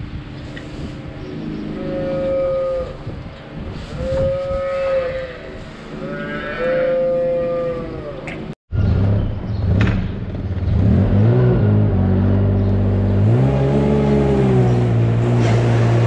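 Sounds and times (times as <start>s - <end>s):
calf mooing: 4.0s - 8.3s.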